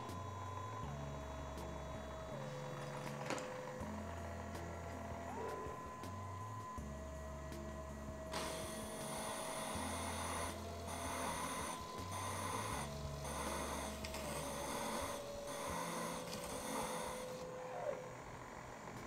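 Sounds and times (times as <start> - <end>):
drill press motor whining: 0.0 - 19.0.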